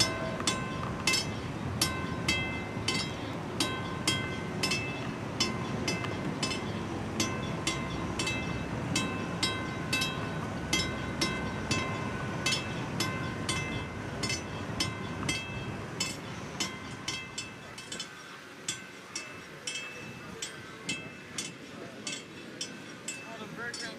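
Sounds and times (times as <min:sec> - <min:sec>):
warning bell ringing: 0:00.0 - 0:18.1.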